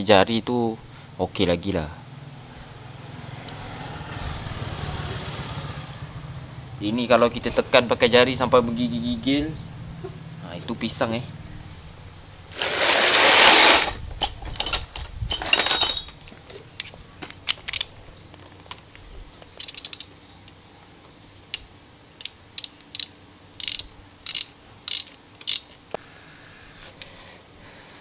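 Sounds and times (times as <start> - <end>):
cam chain clicking and rattling: 12.6 - 18.8, 19.6 - 20.1, 22.2 - 25.8.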